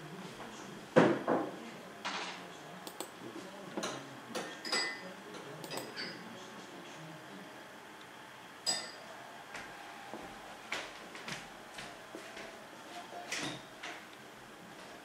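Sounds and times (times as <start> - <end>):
glass clinking: 4.4 - 5.1, 5.7 - 6.2, 8.6 - 9.1.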